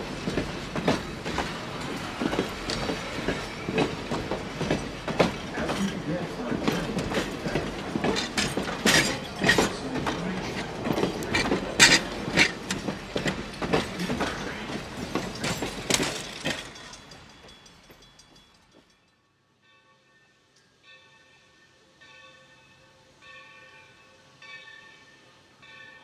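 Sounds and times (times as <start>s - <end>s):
train wheels clacking on track: 0.0s - 19.2s.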